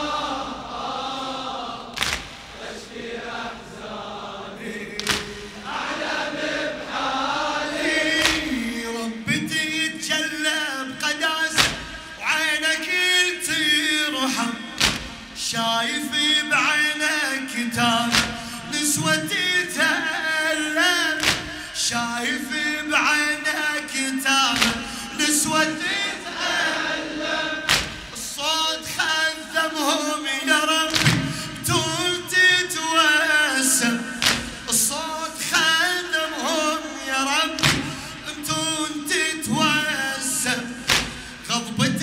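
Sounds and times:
man chanting a lament: 7.7s - 26.5s, 28.1s - 42.0s.

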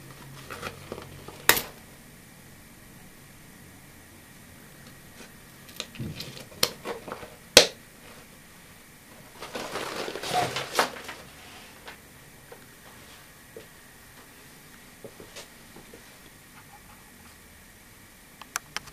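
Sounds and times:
fabric rustling: 9.1s - 12.0s.

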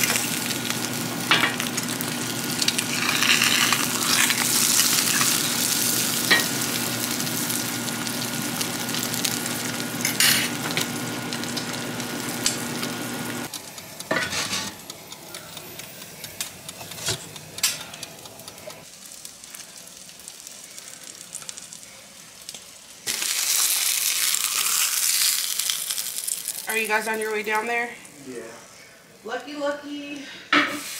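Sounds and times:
food sizzling in a pan: 0.0s - 28.9s, 29.5s - 30.9s
sharp clicks: 13.5s - 18.9s.

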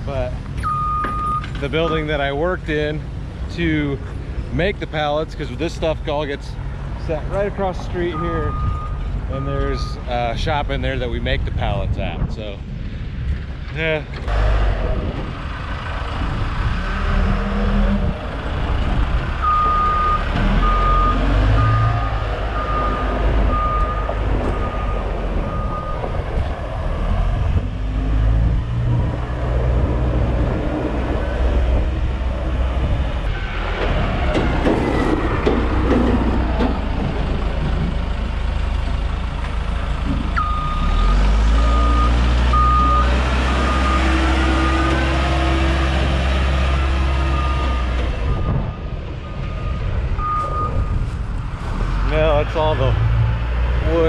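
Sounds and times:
reversing alarm beeping: 0.6s - 2.2s, 8.1s - 10.1s, 19.4s - 26.1s, 40.4s - 45.5s, 46.7s - 51.0s
diesel machine engine running: 12.7s - 54.0s.

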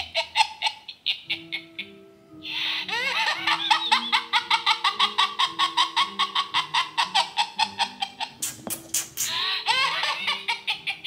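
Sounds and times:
rapid high cackling chirps: 8.2s - 9.7s.

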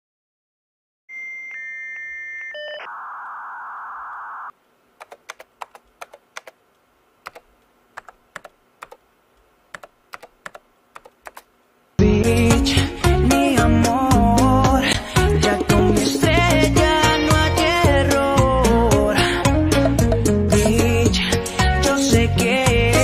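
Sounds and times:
electronic beeps: 1.1s - 4.5s
modem static hiss: 2.4s - 12.0s
keyboard typing clicks: 5.0s - 6.6s, 7.2s - 9.0s, 9.7s - 11.5s.

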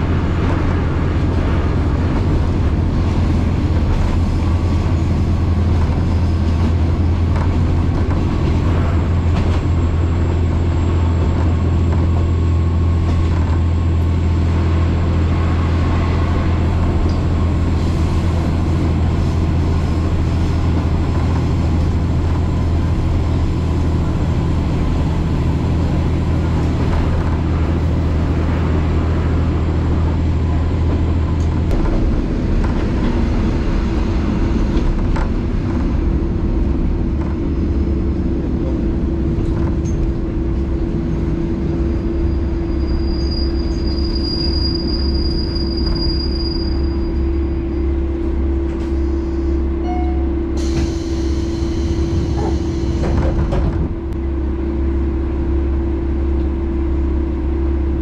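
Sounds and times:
railcar engine drone: 0.0s - 58.0s
high brake squeal: 42.1s - 47.8s, 49.0s - 53.2s.

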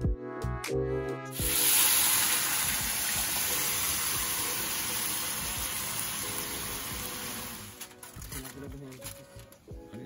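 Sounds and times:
liquid splashing and hissing in pot: 1.4s - 7.7s.

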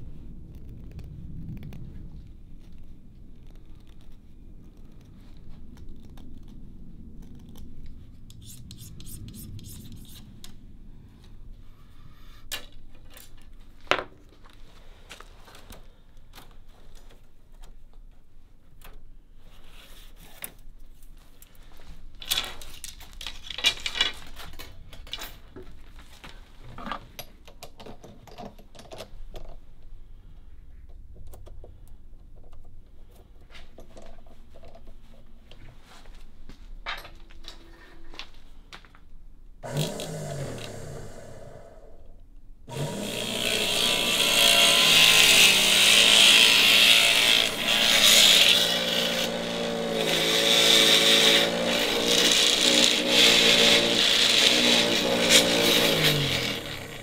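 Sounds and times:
knife scraping bamboo: 8.3s - 10.3s.

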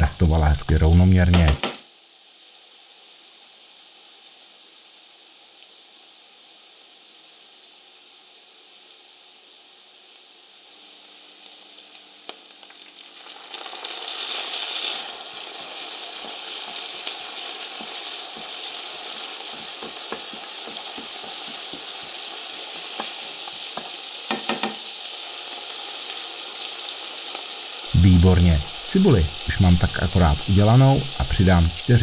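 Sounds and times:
onions sizzling in oil: 0.0s - 32.0s.

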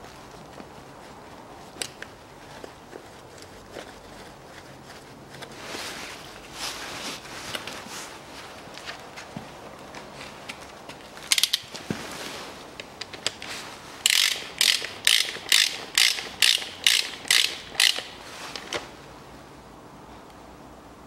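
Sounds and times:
metallic clicks: 14.1s - 18.8s.

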